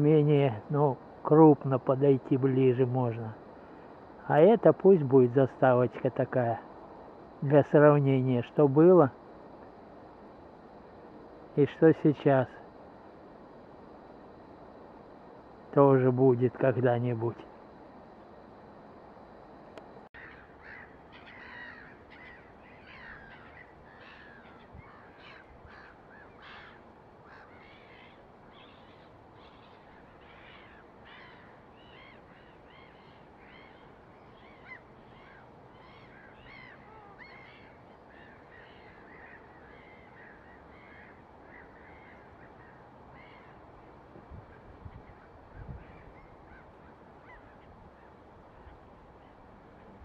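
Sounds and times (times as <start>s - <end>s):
low background hiss: 0.0s - 50.0s
birds chirping: 20.1s - 50.0s.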